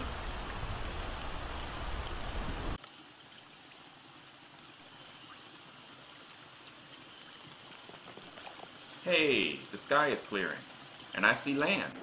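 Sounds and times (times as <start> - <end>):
heavy rain: 0.0 - 2.8
water trickling and lapping: 0.0 - 12.0.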